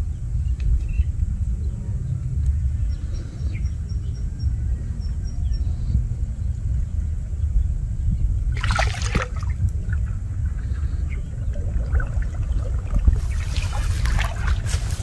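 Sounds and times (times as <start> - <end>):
steady low rumble: 0.0 - 15.0
drips: 8.6 - 15.0
water splashing: 8.6 - 15.0.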